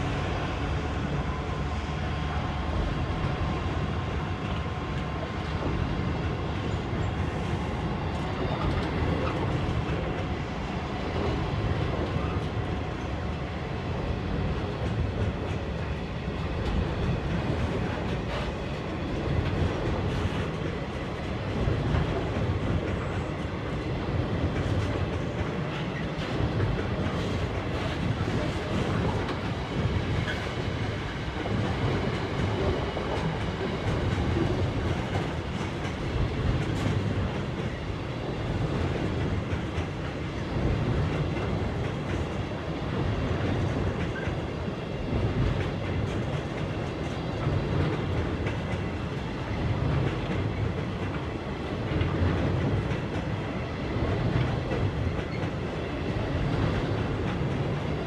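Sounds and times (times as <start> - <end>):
freight train wheels rumbling: 0.0 - 58.0.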